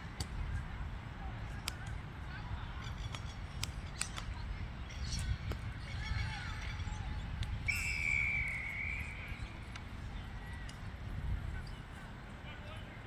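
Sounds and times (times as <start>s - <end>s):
distant shouts: 5.7s - 11.0s
referee's whistle blast: 7.7s - 9.2s.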